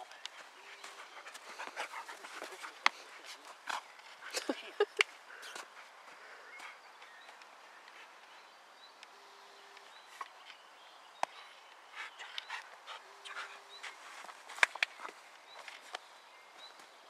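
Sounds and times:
dog panting: 0.3 - 4.5, 11.9 - 14.1.

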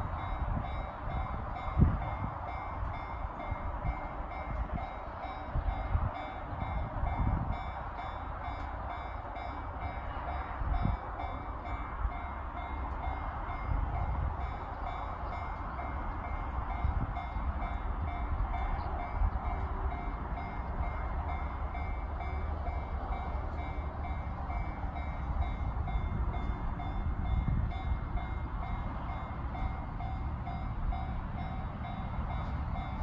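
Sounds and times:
wind on microphone: 0.0 - 8.0.

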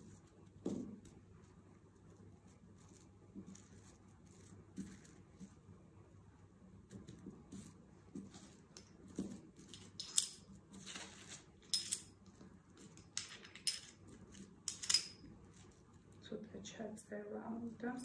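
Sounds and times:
metal tools clinking: 9.7 - 10.4, 11.7 - 12.1, 13.0 - 14.0, 14.7 - 15.3.

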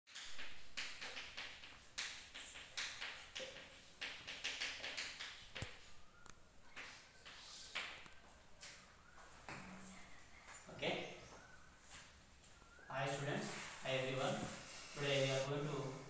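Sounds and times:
chalk scratching on chalkboard: 13.4 - 16.0.

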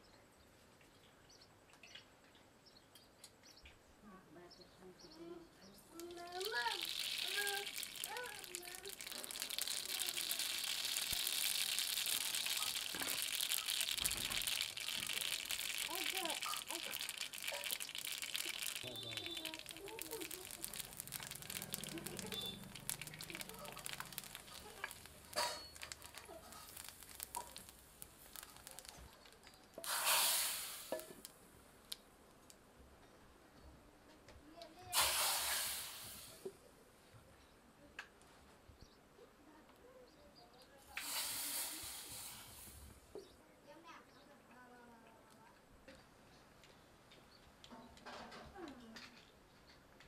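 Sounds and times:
faint crackles: 5.2 - 36.7, 39.6 - 43.4
seeds sizzling in hot oil: 5.9 - 32.1, 34.9 - 36.5, 40.9 - 43.0.

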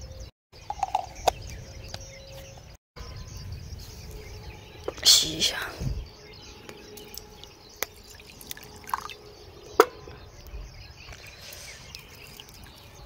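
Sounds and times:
water pouring into mug: 8.1 - 9.2.

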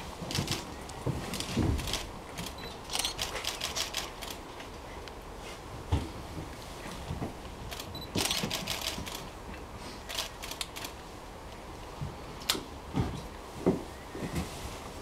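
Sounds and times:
camera shutters clicking: 1.4 - 4.4, 7.7 - 9.2, 10.1 - 11.0.

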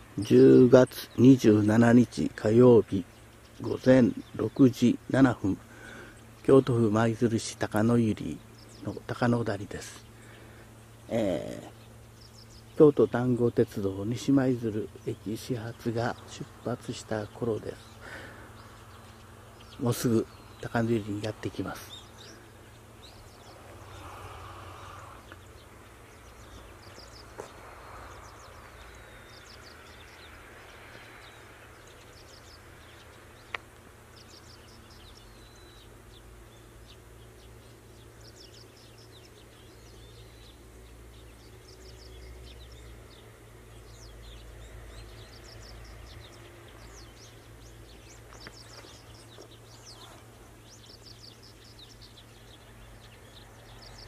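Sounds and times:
low outdoor hum: 0.0 - 54.0
small birds chirping: 0.0 - 54.0.

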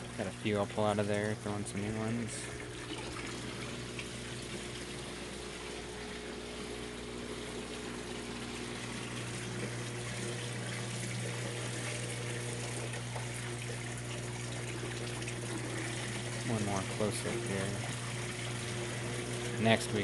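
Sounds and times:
steady low hum: 0.0 - 20.0
water splashing into a tank: 0.0 - 20.0.

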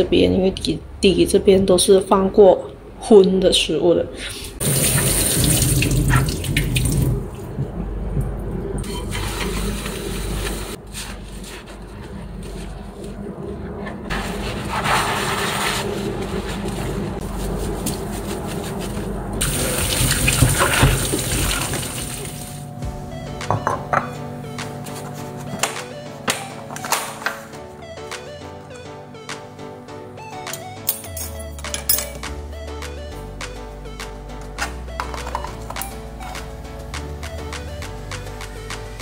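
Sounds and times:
sponge scrubbing dishes: 8.9 - 22.3.

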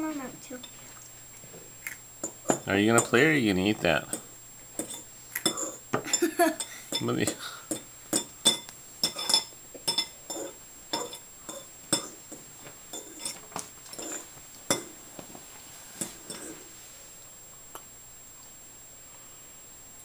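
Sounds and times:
fork clinking against ceramic bowl: 4.8 - 12.2, 12.9 - 14.9.

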